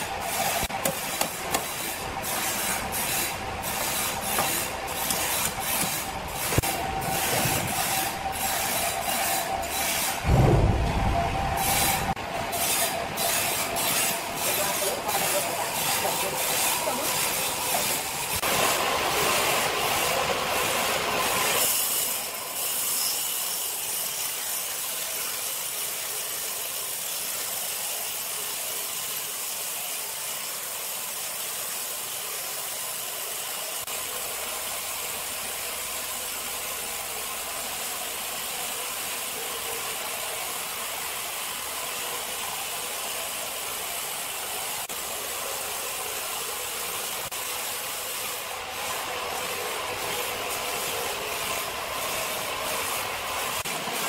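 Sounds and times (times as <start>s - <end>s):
band saw blade cutting log: 0.0s - 10.3s, 11.6s - 29.8s.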